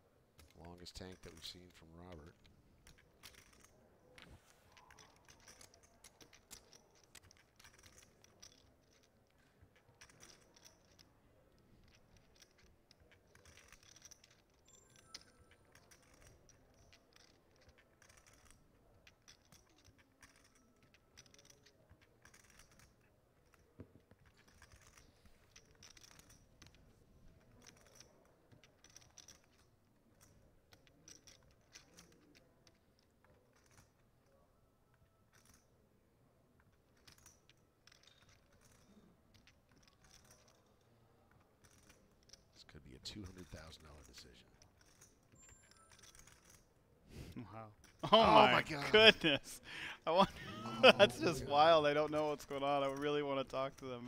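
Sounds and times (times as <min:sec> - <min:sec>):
poker chips clicking: 0:00.4 - 0:34.4, 0:36.7 - 0:40.7, 0:43.1 - 0:46.7.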